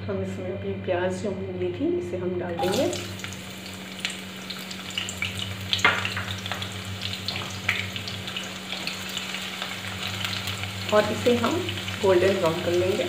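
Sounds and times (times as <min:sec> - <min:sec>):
onions sizzling in oil: 0:02.6 - 0:13.0.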